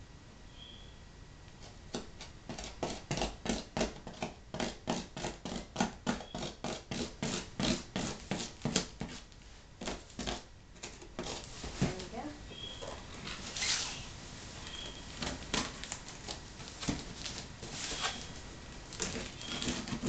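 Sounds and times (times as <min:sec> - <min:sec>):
fingernails scratching packing tape: 0:01.9 - 0:11.5, 0:17.3 - 0:18.3, 0:19.0 - 0:20.0.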